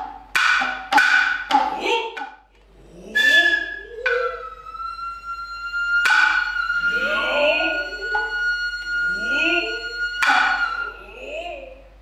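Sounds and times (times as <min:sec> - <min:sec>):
hand drums striking: 0:00.0 - 0:02.4, 0:09.8 - 0:10.8
drummers' rising calls: 0:03.2 - 0:11.0
flute holding high note: 0:03.2 - 0:11.3.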